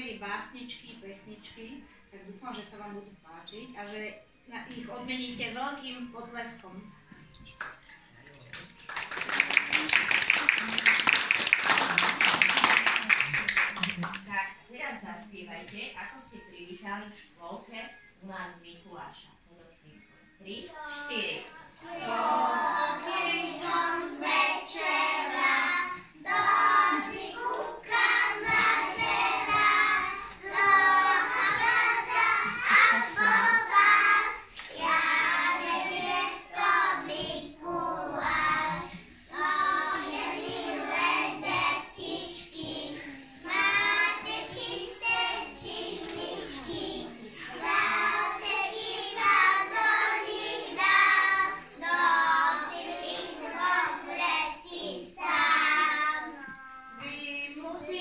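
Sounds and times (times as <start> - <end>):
children singing together: 21.7 - 57.0.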